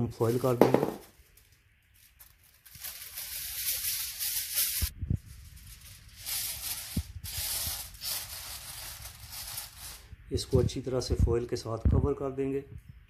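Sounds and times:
aluminium foil crinkling: 0.2 - 10.1.

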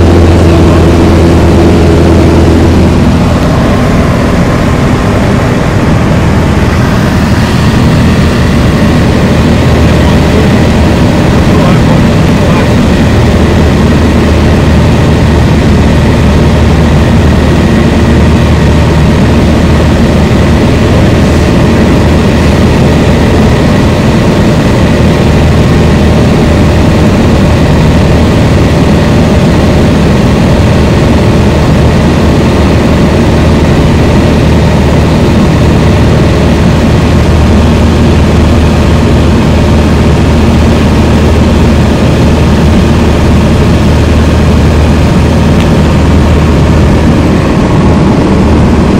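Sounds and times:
light airplane engine drone: 0.0 - 48.9.

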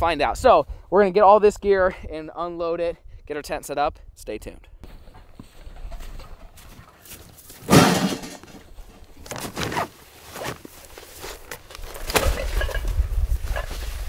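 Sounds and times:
footsteps crunching on snow: 4.8 - 7.9, 8.9 - 14.0
bags dropped and dragged: 6.6 - 14.0
loud thump: 7.7 - 8.4.

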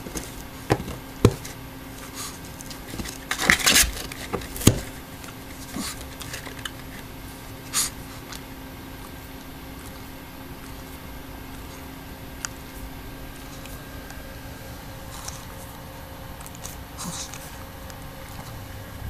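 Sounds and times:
dog scratching in cardboard box: 0.0 - 8.4.

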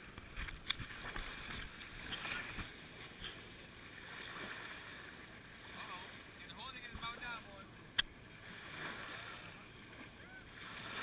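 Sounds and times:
water lapping and splashing: 0.0 - 11.0
sharp splashes: 3.8 - 6.3, 7.9 - 11.0.

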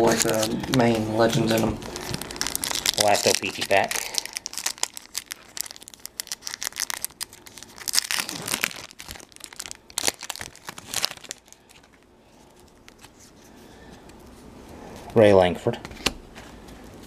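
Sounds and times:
wrapper tearing and crinkling: 0.0 - 12.0.

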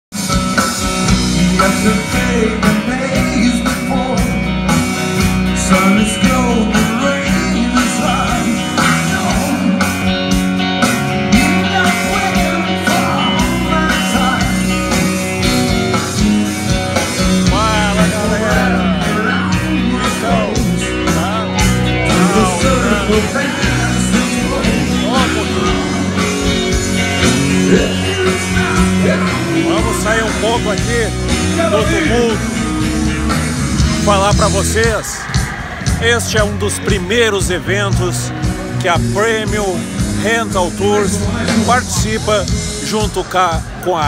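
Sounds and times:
live rock band: 0.1 - 44.0
person singing: 11.3 - 14.6, 17.4 - 26.2, 27.6 - 30.4.

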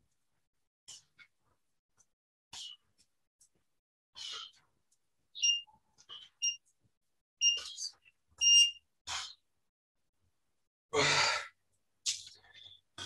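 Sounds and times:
timer beeps: 5.4 - 5.7, 6.4 - 6.6, 7.4 - 7.8, 8.4 - 8.8.

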